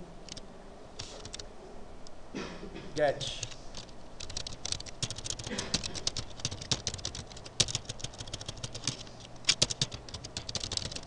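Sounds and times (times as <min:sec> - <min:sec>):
typing on a keyboard: 0:00.2 - 0:00.4, 0:01.0 - 0:01.4, 0:03.4 - 0:11.0.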